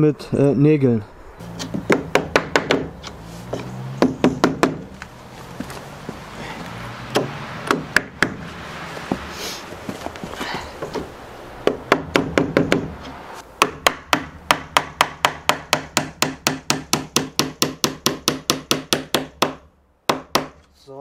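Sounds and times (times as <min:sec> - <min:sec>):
hammer driving nails into wood: 0:01.6 - 0:04.9, 0:07.1 - 0:08.4, 0:13.6 - 0:20.7.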